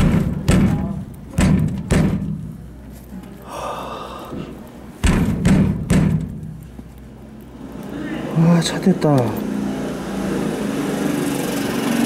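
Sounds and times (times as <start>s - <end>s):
heavy thumps on machine cabinet: 0.0s - 2.4s, 5.0s - 6.5s.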